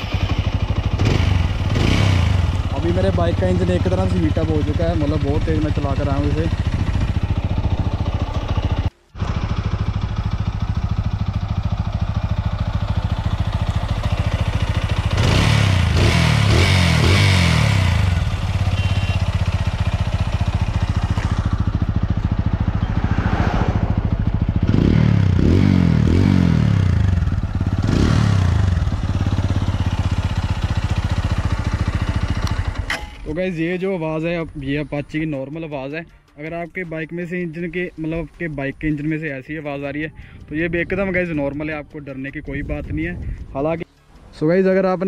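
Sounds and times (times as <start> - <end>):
motorcycle engine idling: 0.0 - 23.2, 23.8 - 44.2
motorcycle engine revving: 0.0 - 33.1.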